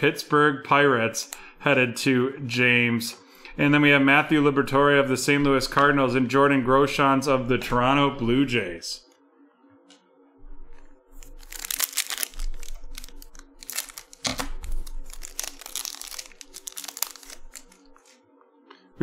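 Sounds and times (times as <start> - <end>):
foil wrapper crinkling: 11.2 - 18.2
scissors cutting foil: 11.2 - 18.2.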